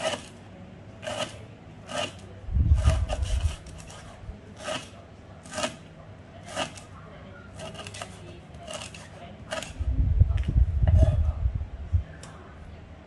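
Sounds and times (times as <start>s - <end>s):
knife chopping on wooden board: 0.0s - 0.3s, 1.0s - 2.2s, 4.6s - 5.8s, 6.5s - 6.8s.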